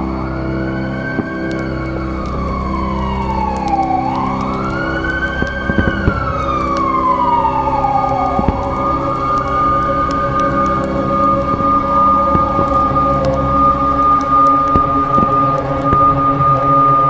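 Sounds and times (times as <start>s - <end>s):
siren wailing: 0.0s - 17.0s
steady low drone: 0.0s - 17.0s.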